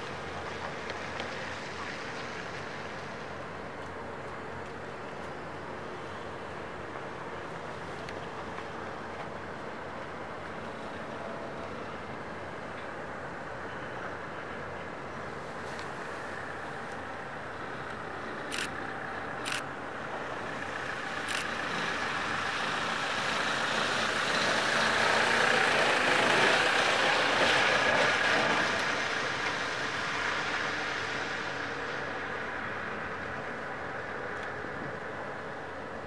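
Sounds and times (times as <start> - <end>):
heavy diesel engine running: 16.1 - 31.7.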